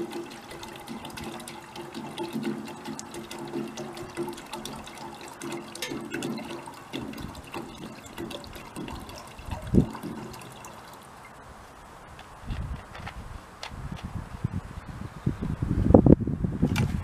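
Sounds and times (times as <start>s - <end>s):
water pouring from plastic bottle: 0.0s - 11.3s.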